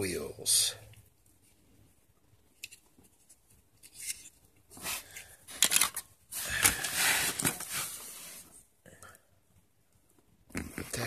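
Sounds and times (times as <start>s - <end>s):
plastic bag rustling: 4.8s - 8.5s.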